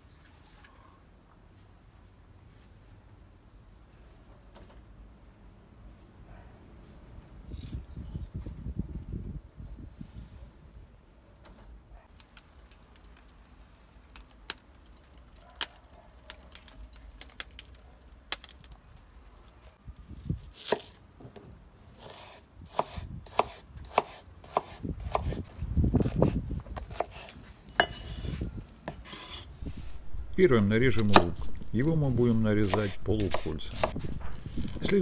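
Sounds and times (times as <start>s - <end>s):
charcoal crackling: 12.1s - 21.0s, 29.1s - 35.0s
knife slicing onion on wooden board: 22.0s - 25.4s, 26.0s - 30.0s, 31.0s - 31.7s, 32.3s - 35.0s.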